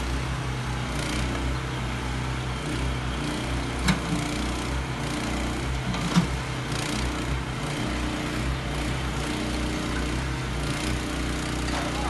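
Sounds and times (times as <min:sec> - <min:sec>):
small excavator engines running: 0:00.0 - 0:12.0
excavators digging in brick rubble: 0:03.2 - 0:12.0.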